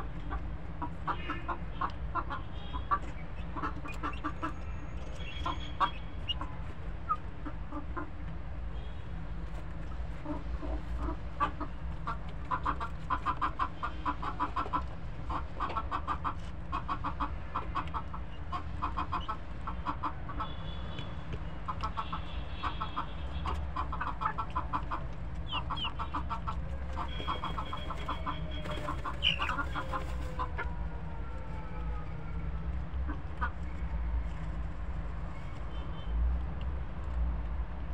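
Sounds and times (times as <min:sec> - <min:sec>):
chickens clucking: 0:00.0 - 0:08.4, 0:09.5 - 0:31.2
beaks pecking metal tray: 0:27.0 - 0:30.2.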